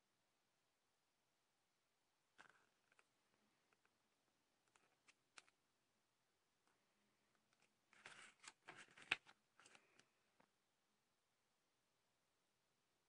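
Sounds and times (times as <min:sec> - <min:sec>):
paper rustling and crackling: 0:07.6 - 0:10.1.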